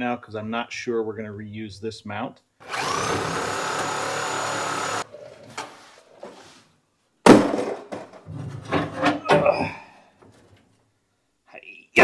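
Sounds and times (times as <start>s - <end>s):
reciprocating saw cutting metal: 2.6s - 5.0s.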